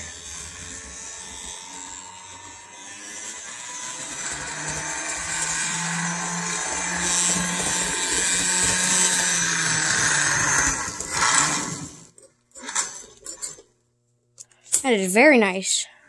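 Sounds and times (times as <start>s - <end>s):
model train motor whining: 0.0s - 13.7s.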